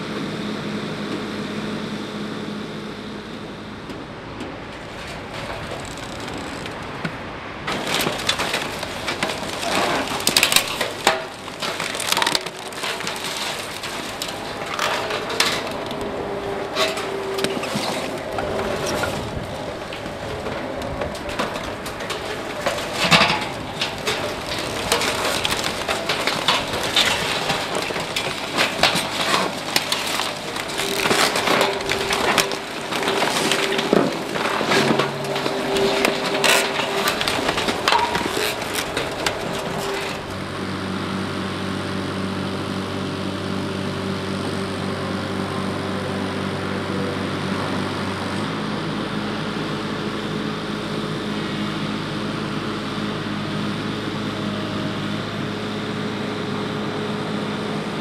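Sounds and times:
compaction machine running: 0.0s - 58.0s
wood cracking and snapping: 4.4s - 40.5s.

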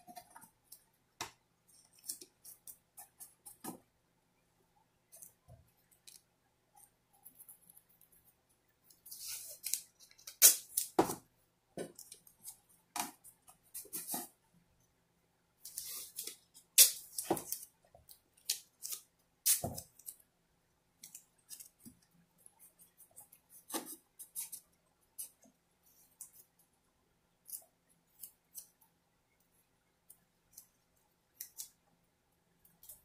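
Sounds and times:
tape ripping: 9.5s - 11.0s.

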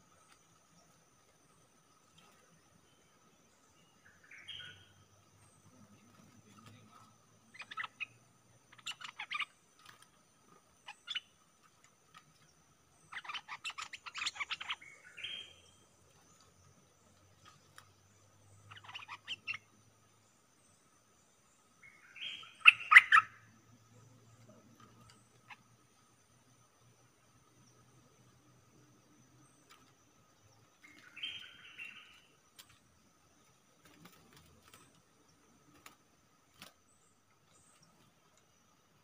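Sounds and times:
bulbuls chattering: 5.4s - 10.0s.

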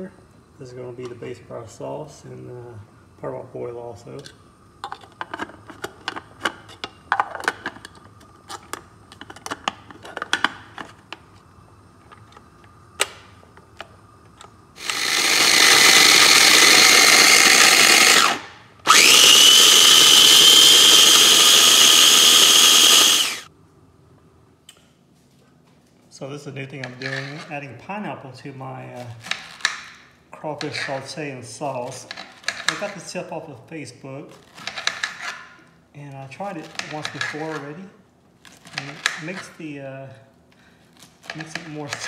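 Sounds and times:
food processor motor whining: 14.8s - 23.5s.

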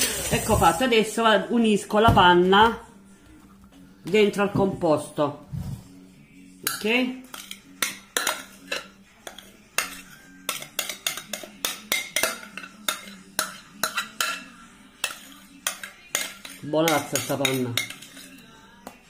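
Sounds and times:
metal spoon clinking on bowl: 6.6s - 18.5s.

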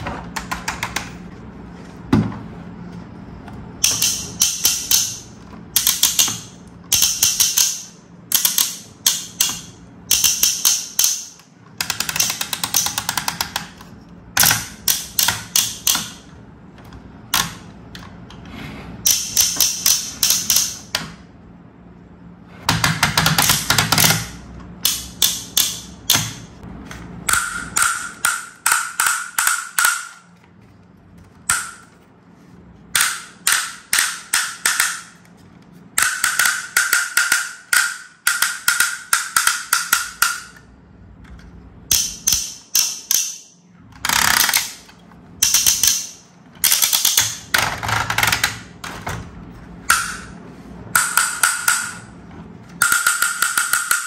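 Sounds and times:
plastic toy parts clicking and rattling: 3.8s - 16.3s, 19.1s - 21.0s, 32.9s - 50.3s, 51.0s - 54.0s.

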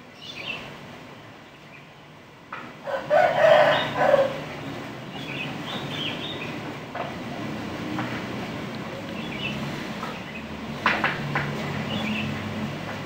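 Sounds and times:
loud drawn-out animal call: 2.8s - 4.5s.

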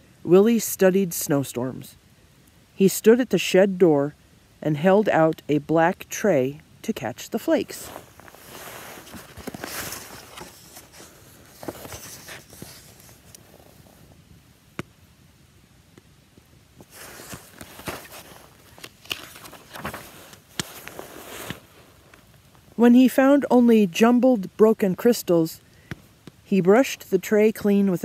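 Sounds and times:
book pages rustling: 7.4s - 14.2s, 16.8s - 22.6s.

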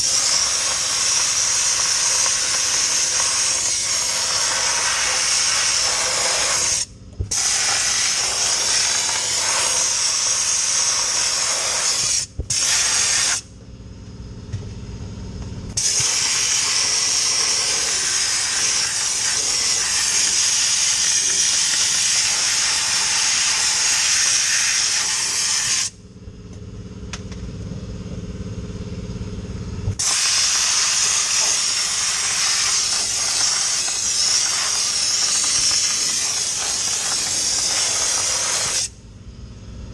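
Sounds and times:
dry ice blasting gun hissing: 0.0s - 13.5s, 15.8s - 26.0s, 30.0s - 39.0s
low machine hum: 13.4s - 20.1s, 25.9s - 30.0s, 31.2s - 39.9s.

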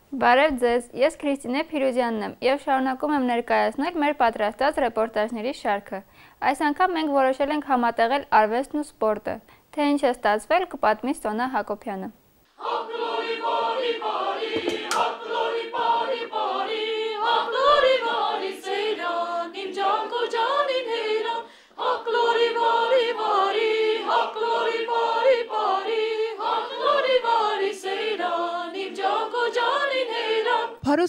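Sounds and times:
choir singing unaccompanied: 12.5s - 30.8s.

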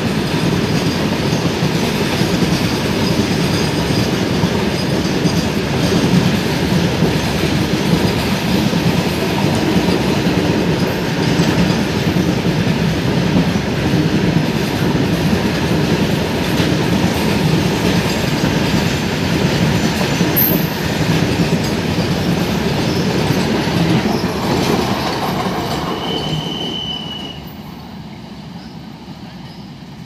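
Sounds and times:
freight train wheels rolling: 0.0s - 30.0s
high squeal: 25.7s - 27.9s.

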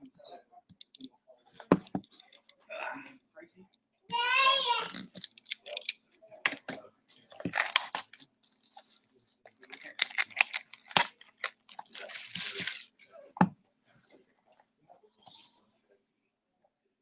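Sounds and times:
plastic wrap crinkling: 7.2s - 9.0s, 9.6s - 13.1s.

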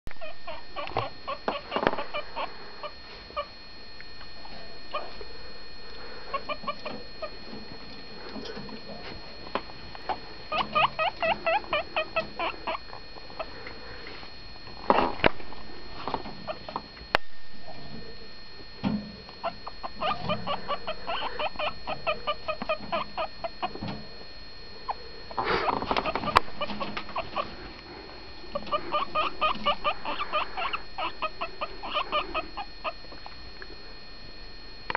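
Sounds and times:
guinea pig squeaking: 0.2s - 3.5s, 4.3s - 5.2s, 6.3s - 7.5s, 10.5s - 12.8s, 19.4s - 23.8s, 24.9s - 27.7s, 28.5s - 33.3s.

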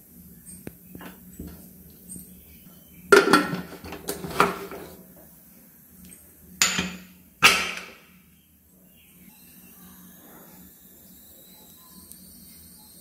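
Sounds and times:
pressure cooker lid clanking: 3.1s - 4.6s, 6.6s - 7.9s.

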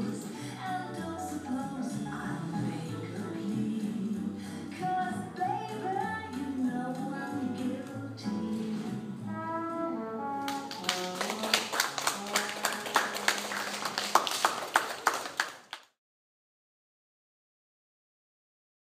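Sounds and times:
recorded music with melody: 0.0s - 11.4s
audience clapping: 10.4s - 16.0s.

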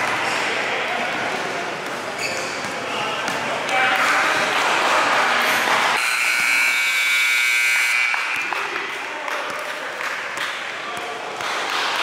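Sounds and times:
scoreboard buzzer: 6.0s - 8.4s.

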